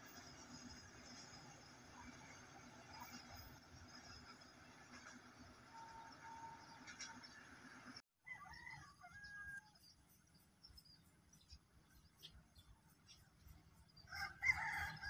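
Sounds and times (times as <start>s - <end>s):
faint outdoor ambience: 0.0s - 15.0s
rooster crowing: 8.2s - 9.8s, 14.1s - 15.0s.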